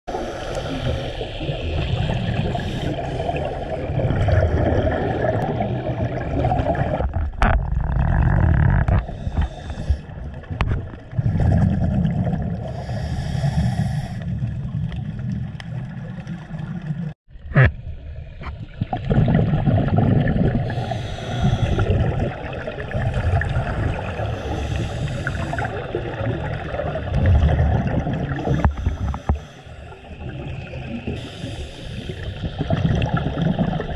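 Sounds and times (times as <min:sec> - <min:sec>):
diver breathing through regulator: 0:00.1 - 0:01.6, 0:02.2 - 0:04.0, 0:08.9 - 0:10.2, 0:12.6 - 0:14.5, 0:20.6 - 0:22.2, 0:23.2 - 0:26.0, 0:28.3 - 0:30.4, 0:31.1 - 0:32.5.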